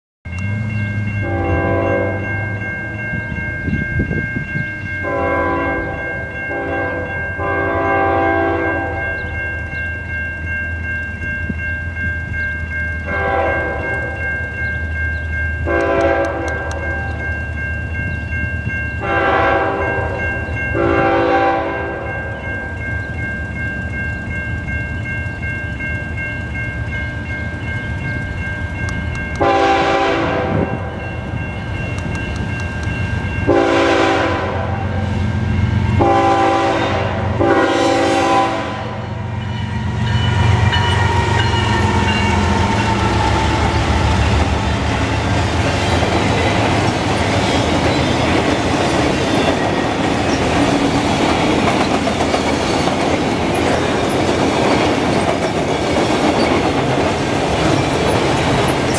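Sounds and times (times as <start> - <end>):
crossing warning bell ringing: 0.3 - 58.9
train horn blasts: 1.2 - 2.5, 5.0 - 9.1, 13.1 - 14.2, 15.7 - 17.2, 19.0 - 22.1, 29.3 - 31.0, 33.5 - 35.1, 36.0 - 44.3
locomotive engine rumble: 26.1 - 58.9.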